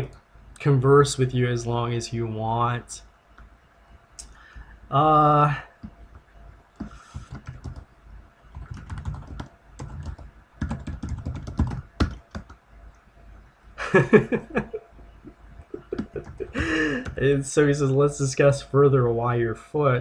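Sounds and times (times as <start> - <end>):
typing on a keyboard: 6.8 - 7.9, 8.5 - 12.6, 16.0 - 17.2.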